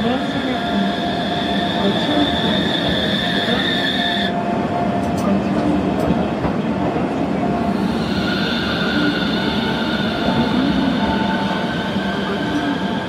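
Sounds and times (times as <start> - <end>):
tram wheels squealing on rails: 0.0 - 4.4, 7.6 - 13.0.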